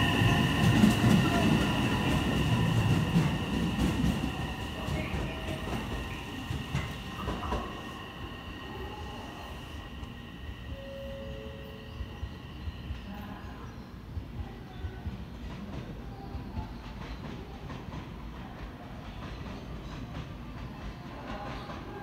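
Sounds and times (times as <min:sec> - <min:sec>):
electric train wheel rumble: 0:00.0 - 0:14.3.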